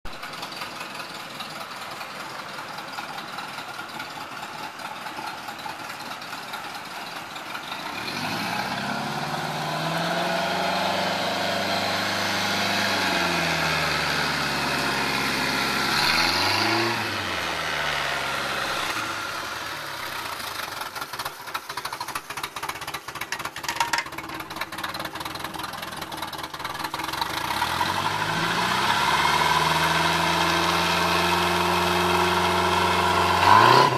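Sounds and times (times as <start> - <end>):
boat engine revving: 7.8 - 19.6, 27.0 - 33.9.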